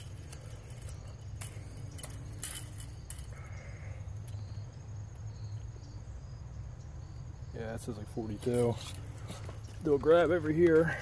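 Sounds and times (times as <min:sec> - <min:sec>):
metal tape measure rattling: 0:00.0 - 0:03.4
steady low hum: 0:00.0 - 0:11.0.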